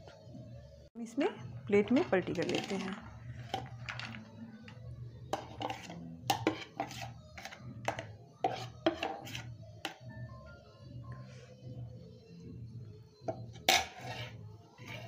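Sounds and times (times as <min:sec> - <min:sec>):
metal spoon scraping steel bowl: 0:01.8 - 0:04.0, 0:05.3 - 0:10.0, 0:13.5 - 0:15.0.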